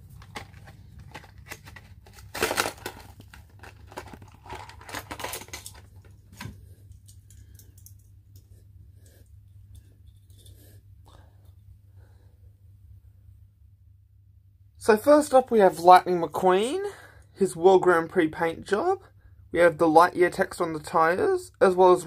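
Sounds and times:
plastic packaging crinkling and tearing: 0.0s - 6.5s.

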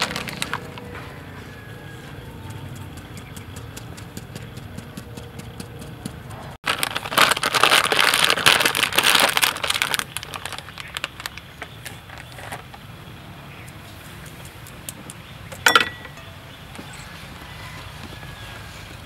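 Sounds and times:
plastic bag rustling: 0.0s - 1.2s, 6.6s - 12.7s.

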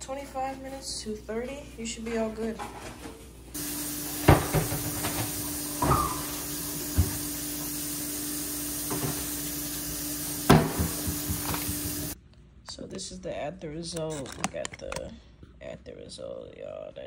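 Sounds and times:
kitchen fan hissing and humming: 0.0s - 12.2s.

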